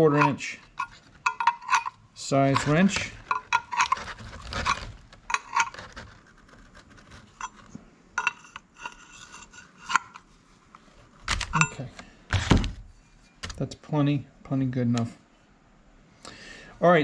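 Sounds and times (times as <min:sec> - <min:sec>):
wrench clinking on metal: 0:00.0 - 0:04.0, 0:08.2 - 0:09.1, 0:11.5 - 0:11.9
metal scraping: 0:00.0 - 0:13.4.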